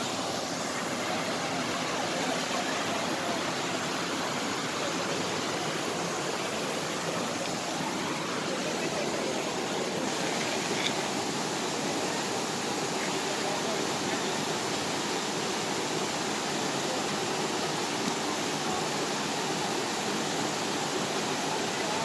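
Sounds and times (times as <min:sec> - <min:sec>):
waterfall rushing over rocks: 0:00.0 - 0:22.0.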